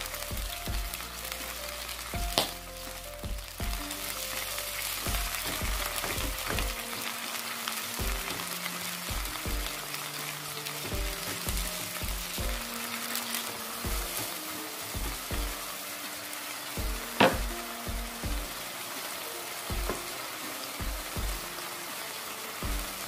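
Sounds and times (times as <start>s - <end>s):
fish sizzling in oil: 0.0s - 23.0s
spatula stirring in wok: 4.3s - 15.9s.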